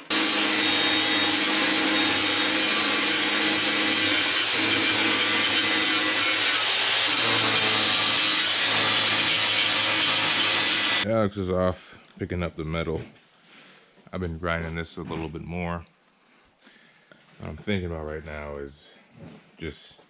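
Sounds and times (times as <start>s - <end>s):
angle grinder grinding steel: 0.0s - 11.0s.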